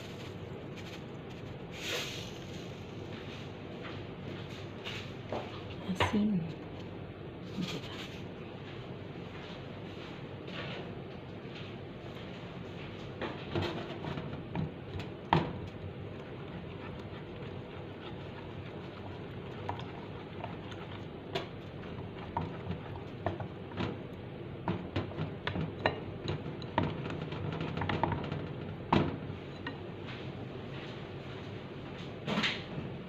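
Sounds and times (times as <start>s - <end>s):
spatula stirring thick batter: 13.4s - 28.0s.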